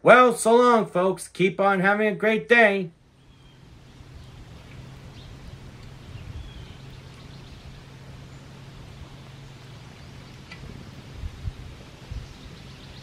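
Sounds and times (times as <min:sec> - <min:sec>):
steady low hum: 0:02.9 - 0:13.0
faint bird chirps: 0:03.1 - 0:13.0.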